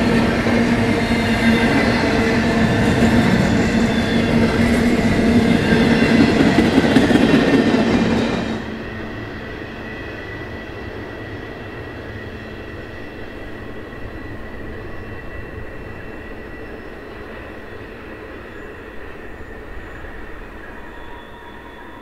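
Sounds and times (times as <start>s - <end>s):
freight train rolling on rails: 0.0s - 22.0s
high wheel squeal: 19.4s - 22.0s.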